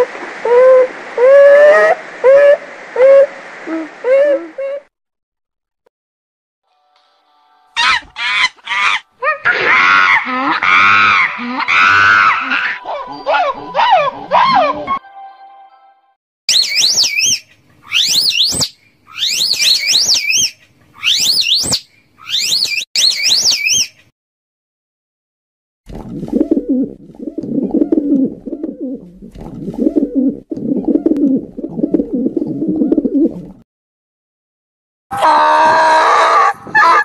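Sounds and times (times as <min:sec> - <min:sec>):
high wavering whistled calls: 0:16.5 - 0:24.0
pigeons cooing: 0:26.2 - 0:33.6.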